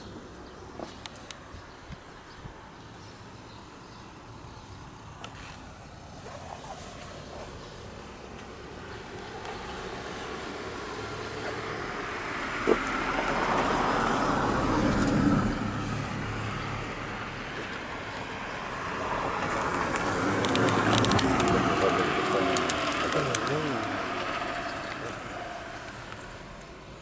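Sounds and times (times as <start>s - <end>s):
passing vehicle rushing: 9.2s - 26.6s.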